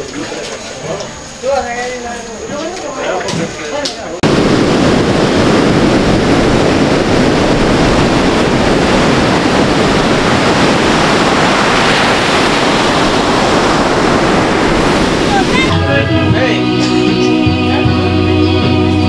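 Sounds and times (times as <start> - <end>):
surf breaking on beach: 4.2 - 17.0.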